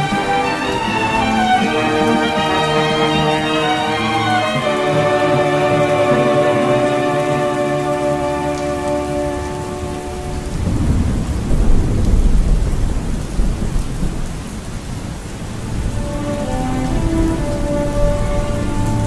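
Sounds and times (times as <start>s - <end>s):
soft music tones: 0.0s - 11.0s, 15.6s - 19.0s
steady rain falling: 0.0s - 19.0s
rolling thunder: 4.0s - 18.8s.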